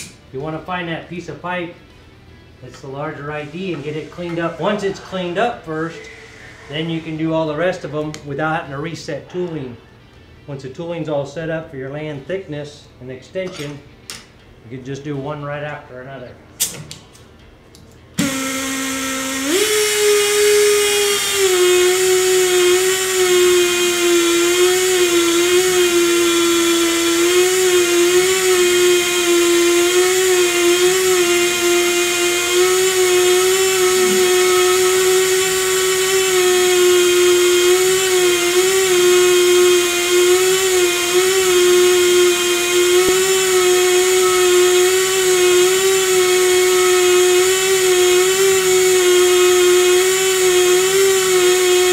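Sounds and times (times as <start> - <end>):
air motor whining: 2.7 - 8.4, 18.2 - 51.9.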